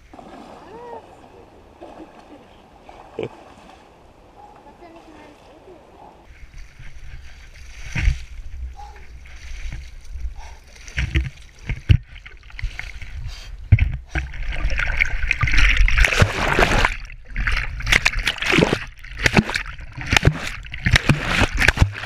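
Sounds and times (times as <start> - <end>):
river water splashing: 0.0 - 22.0
rushing water underwater: 6.3 - 22.0.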